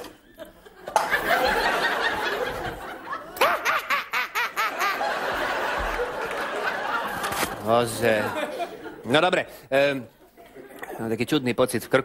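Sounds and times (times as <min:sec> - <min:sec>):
studio audience laughing: 0:00.0 - 0:09.2
person laughing ha ha: 0:03.4 - 0:05.0.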